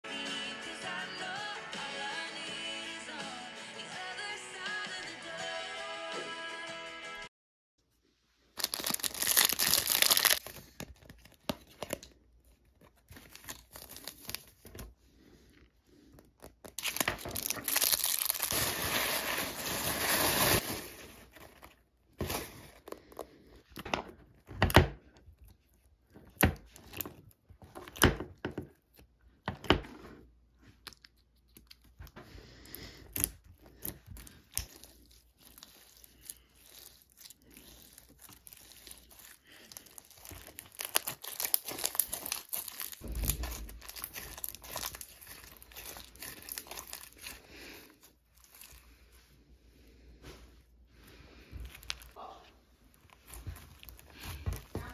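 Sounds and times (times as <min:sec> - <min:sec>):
paper and plastic crinkling: 0:08.5 - 0:15.0, 0:16.2 - 0:24.6, 0:33.1 - 0:49.2, 0:51.5 - 0:52.2, 0:52.8 - 0:54.9
slime squishing with popping bubbles: 0:23.8 - 0:29.9, 0:33.1 - 0:47.5.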